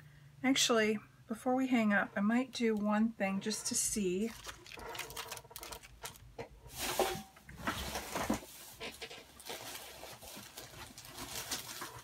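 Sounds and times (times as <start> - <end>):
paper rustling: 4.2 - 12.0.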